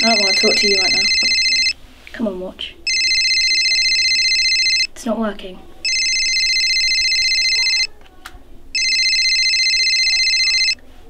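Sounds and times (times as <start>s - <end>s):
electronic telephone ring: 0.0s - 1.8s, 2.9s - 4.9s, 5.8s - 7.9s, 8.8s - 10.8s.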